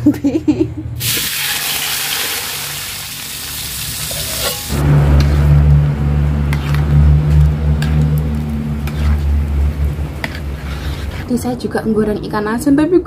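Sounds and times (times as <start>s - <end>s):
food sizzling in a wok: 1.0s - 5.5s.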